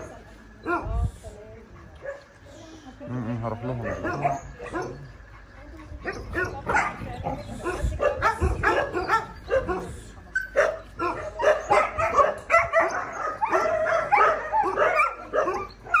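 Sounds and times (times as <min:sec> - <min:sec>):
dogs barking and yipping: 0:03.5 - 0:16.0.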